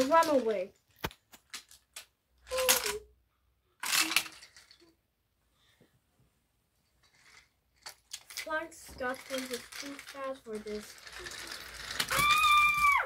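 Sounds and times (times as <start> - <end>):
wooden toy train pieces clacking: 0.0 - 3.1, 3.8 - 5.0, 7.0 - 13.0.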